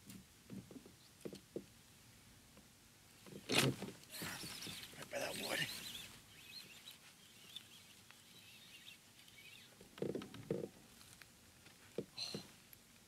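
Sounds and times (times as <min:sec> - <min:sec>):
faint birds chirping: 0:04.1 - 0:09.9, 0:12.0 - 0:12.7.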